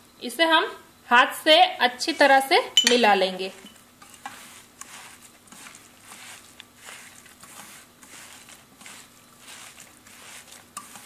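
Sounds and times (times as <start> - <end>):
hand kneading minced meat: 3.8 - 11.0.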